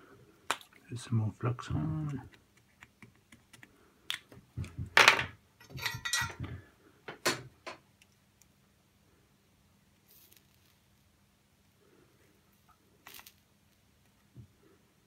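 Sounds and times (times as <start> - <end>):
faint steady hum: 0.0 - 15.0
tools clicking and knocking: 4.6 - 7.8.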